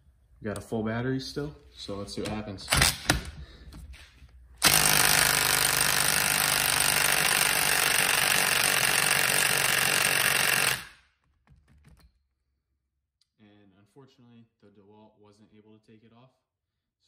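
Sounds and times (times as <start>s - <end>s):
impact wrench hammering: 4.6s - 11.0s.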